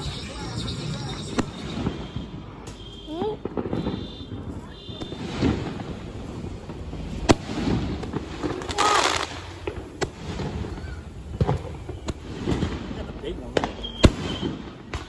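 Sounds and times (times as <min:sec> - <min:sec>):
firework bangs: 0:00.0 - 0:15.0
firework hissing rush: 0:05.4 - 0:12.8.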